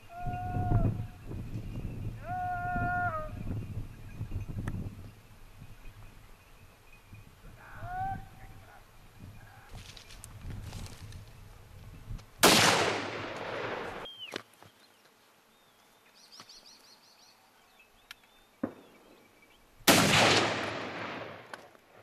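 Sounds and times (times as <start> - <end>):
rifle shots echoing: 12.4 - 14.0, 19.9 - 21.7.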